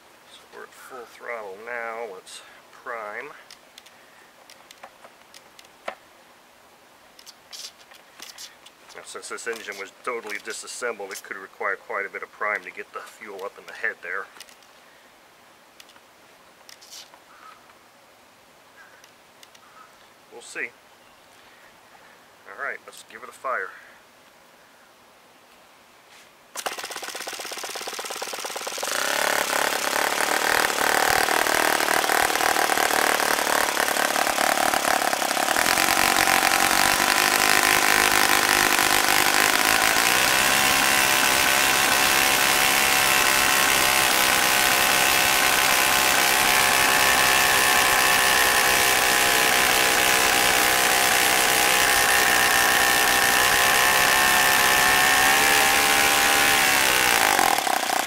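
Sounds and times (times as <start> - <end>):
model engine running: 26.6 - 58.0.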